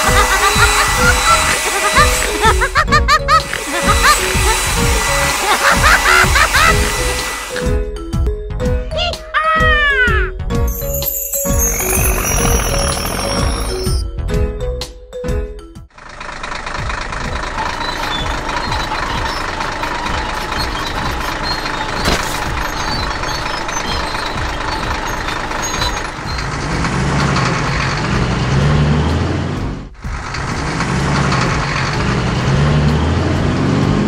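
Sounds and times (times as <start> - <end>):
steady machine din: 0.0 - 7.8, 11.4 - 13.9, 16.7 - 28.9
deep engine rumble: 15.9 - 34.0.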